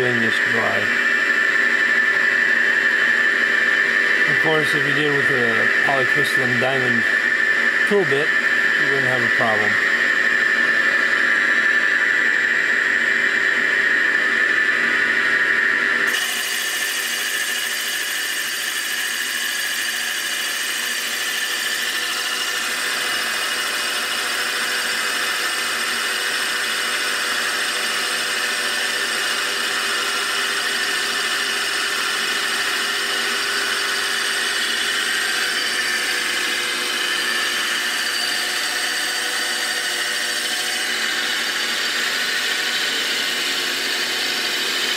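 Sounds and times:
milling machine whine: 0.0 - 44.9
hissy metal cutting noise: 7.9 - 9.8.

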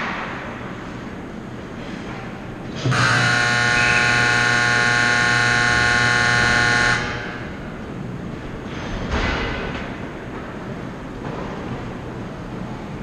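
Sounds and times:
game horn long blast: 2.9 - 7.4.

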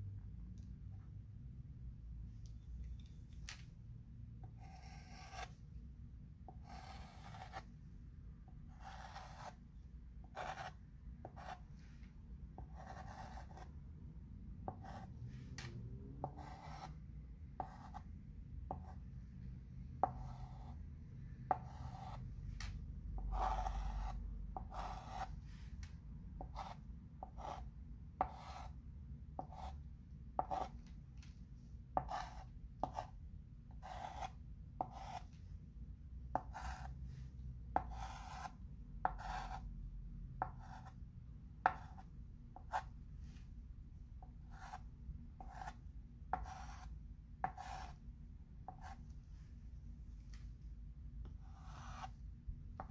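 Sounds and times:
chalk scratching on chalkboard: 4.5 - 5.6, 6.5 - 7.7, 8.7 - 9.6, 10.3 - 11.7, 12.6 - 13.7, 14.7 - 15.4, 16.2 - 17.0, 17.6 - 18.0, 20.0 - 20.8, 21.5 - 22.2, 23.2 - 25.7, 26.4 - 27.6, 28.2 - 28.7, 29.4 - 29.8, 30.4 - 30.8, 32.0 - 33.1, 33.8 - 35.3, 36.4 - 37.2, 37.8 - 39.6, 40.4 - 41.0, 44.5 - 44.8, 45.4 - 48.0, 51.3 - 52.2.

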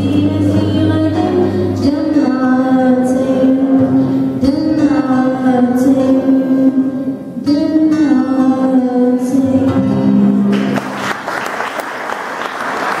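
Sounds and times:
girl singing: 0.0 - 10.2
strummed acoustic guitar: 0.0 - 11.0
audience applause: 10.5 - 13.0.

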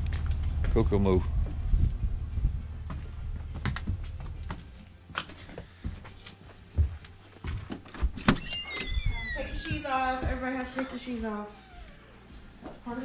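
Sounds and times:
low rumble: 0.0 - 4.6
footsteps: 0.0 - 8.3, 9.0 - 13.0.

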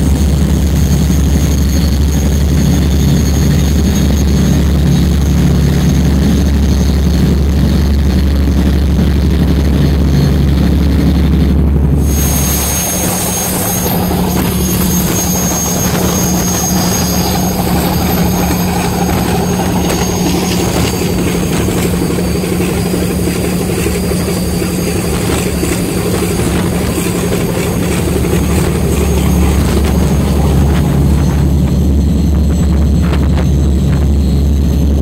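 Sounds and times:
boat engines droning: 0.0 - 35.0
rush of wake and spray: 12.0 - 32.0.

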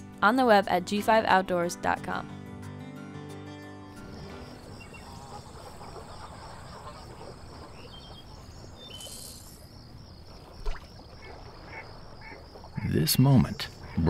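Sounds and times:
insects chirping: 3.9 - 14.0
brief hiss: 8.9 - 9.6.

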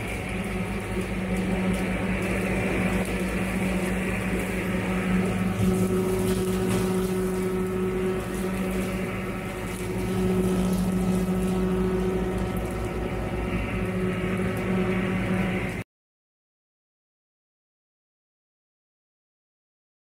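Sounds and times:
tractor engine and brush cutter: 0.0 - 15.8.

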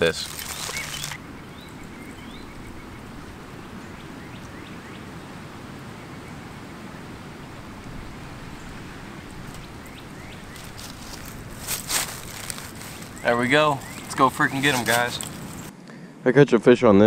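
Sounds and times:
steady wind: 0.0 - 17.0
faint bird chirps: 0.5 - 6.9, 12.5 - 14.8.

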